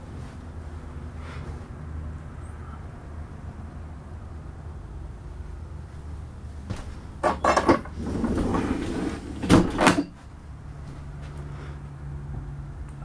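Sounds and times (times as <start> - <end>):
wooden cabinet knocks and clatter: 6.7 - 10.2.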